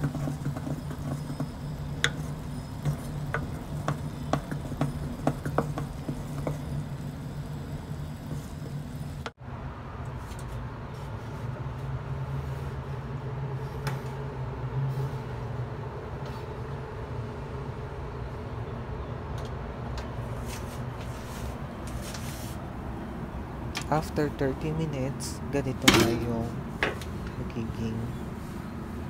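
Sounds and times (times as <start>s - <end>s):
spatula scraping a metal pot: 0.0s - 8.8s.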